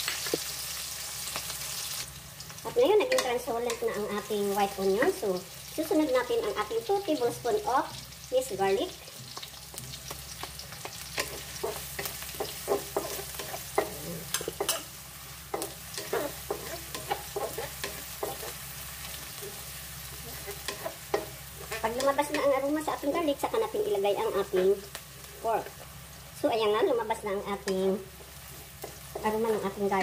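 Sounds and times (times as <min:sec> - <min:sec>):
garlic and onion sizzling in oil: 0:00.0 - 0:30.0
spatula scraping and tapping wok: 0:02.7 - 0:05.2, 0:08.9 - 0:25.0, 0:27.6 - 0:30.0.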